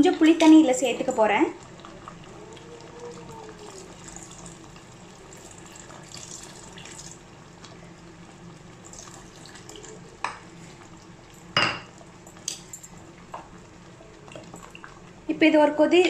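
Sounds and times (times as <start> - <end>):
liquid trickling into a pot: 1.1 - 11.4.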